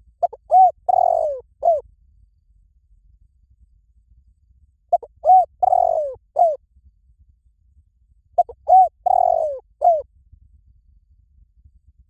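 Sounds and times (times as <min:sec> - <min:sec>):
dove cooing: 0:00.2 - 0:01.8, 0:04.9 - 0:06.6, 0:08.4 - 0:10.0.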